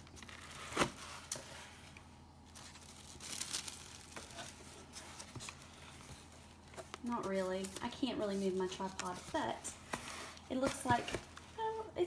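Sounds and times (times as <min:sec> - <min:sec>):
tissue paper rustling: 0:02.5 - 0:11.4.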